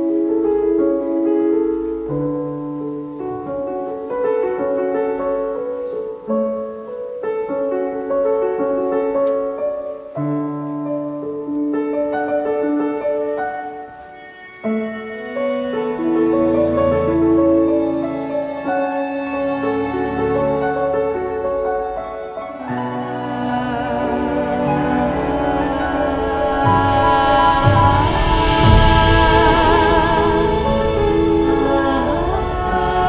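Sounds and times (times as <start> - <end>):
keyboard playing sustained chords: 12.6 - 33.0
deep bass note: 25.1 - 33.0.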